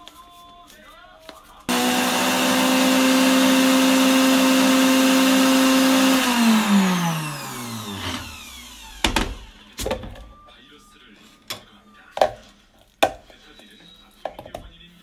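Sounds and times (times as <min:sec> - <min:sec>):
blender motor running: 0:01.7 - 0:09.6.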